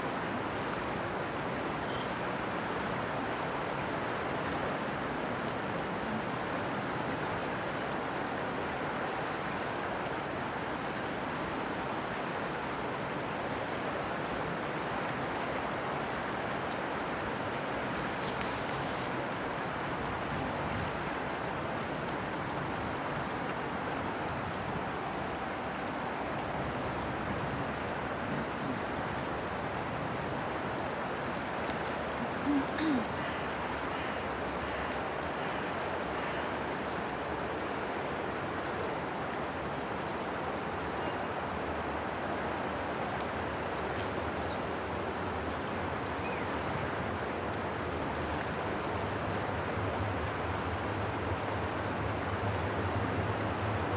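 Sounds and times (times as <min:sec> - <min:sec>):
river water rushing: 0:00.0 - 0:53.9
wind: 0:00.0 - 0:53.9
short low calls: 0:32.1 - 0:33.2.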